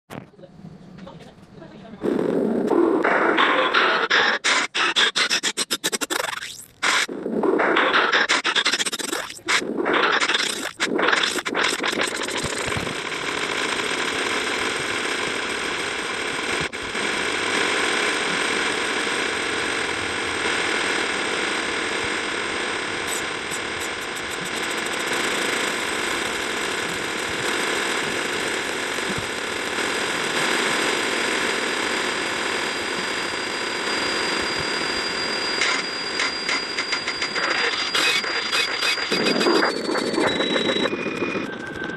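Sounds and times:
harsh wall of noise: 1.0 - 41.9
steady high tone: 32.1 - 41.9.

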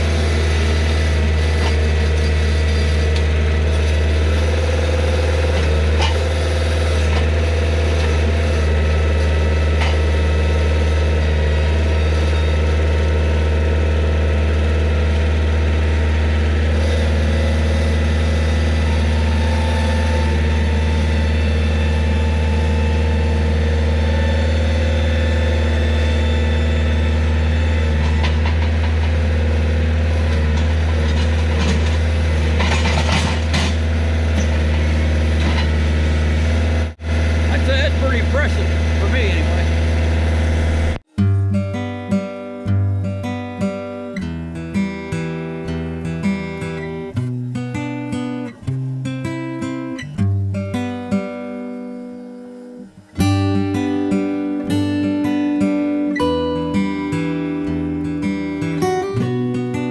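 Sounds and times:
engine running steadily: 0.0 - 59.9
clanks and rattles: 28.0 - 29.3, 30.2 - 35.9.

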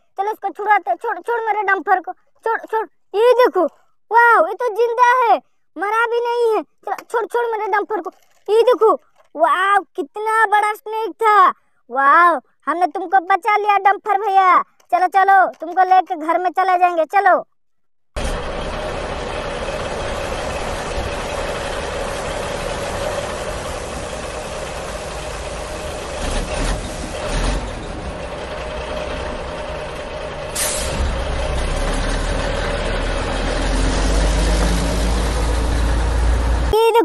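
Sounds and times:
truck engine running: 18.2 - 36.8
short sharp hiss: 30.5 - 31.1.

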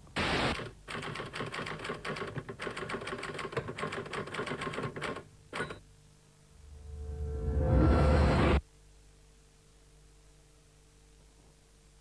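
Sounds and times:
typewriter key strikes: 0.6 - 5.8
brief burst of noise: 6.6 - 8.6.

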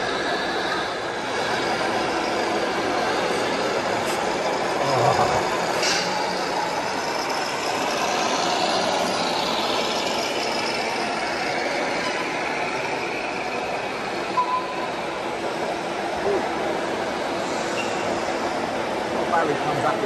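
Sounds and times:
short high beep: 14.4 - 14.9.

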